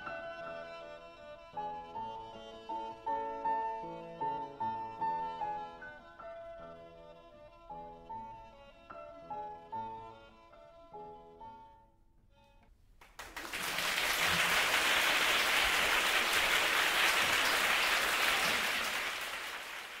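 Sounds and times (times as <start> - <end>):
violin and piano piece: 0.0 - 11.8
audience applause: 13.0 - 20.0.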